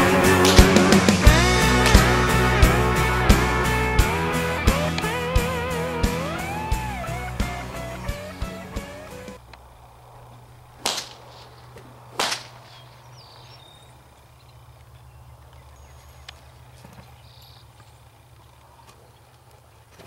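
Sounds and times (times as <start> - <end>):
whip cracks: 0.4 - 2.6, 10.8 - 12.8.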